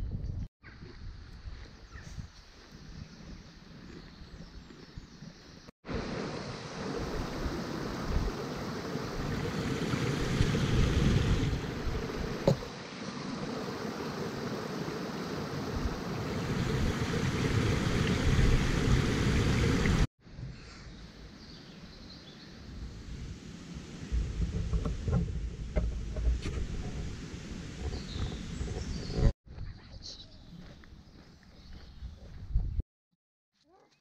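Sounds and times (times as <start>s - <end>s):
wind noise on microphone: 0.0s - 5.4s, 6.8s - 12.7s, 15.6s - 20.1s, 24.0s - 30.0s, 31.8s - 32.8s
stream trickling over stones: 5.9s - 20.1s.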